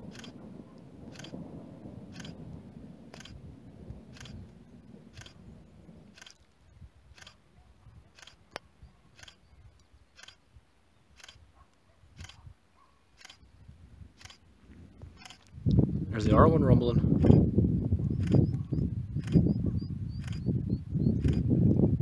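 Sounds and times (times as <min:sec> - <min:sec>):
low rumble: 0:00.0 - 0:07.4, 0:13.6 - 0:22.0
camera shutter clicks: 0:06.2 - 0:06.4, 0:07.2 - 0:07.4, 0:08.2 - 0:08.4, 0:09.2 - 0:09.4, 0:11.2 - 0:11.4, 0:12.2 - 0:12.4, 0:13.2 - 0:13.4, 0:14.2 - 0:14.4, 0:15.2 - 0:15.4, 0:20.2 - 0:20.4.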